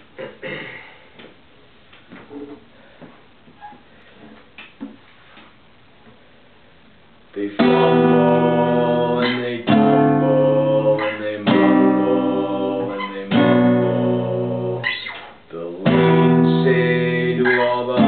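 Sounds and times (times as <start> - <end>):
acoustic guitar chords: 7.4 - 18.0.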